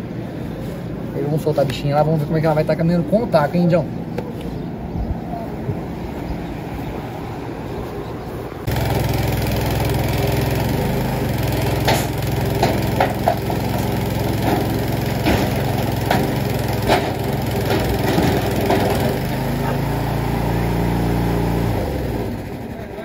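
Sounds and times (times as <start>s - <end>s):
small petrol engine running: 8.7s - 23.0s
knocks on metal frame: 11.8s - 19.1s.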